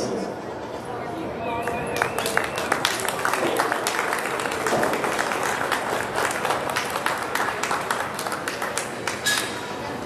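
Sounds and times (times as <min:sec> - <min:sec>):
audience applauding: 0:01.6 - 0:09.4.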